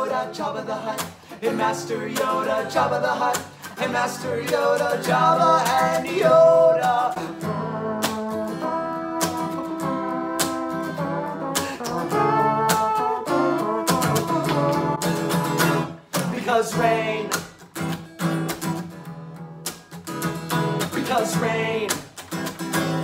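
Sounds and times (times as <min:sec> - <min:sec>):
men singing: 0:00.0 - 0:07.7, 0:16.2 - 0:17.4, 0:20.9 - 0:22.0
acoustic guitar strumming: 0:00.0 - 0:23.0.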